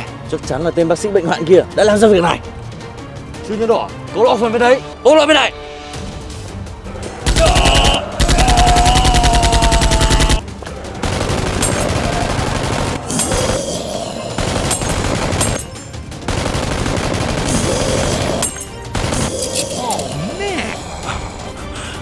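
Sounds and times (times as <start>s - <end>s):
rapid automatic gunfire: 7.3s - 10.4s, 11.0s - 13.6s, 14.4s - 19.3s.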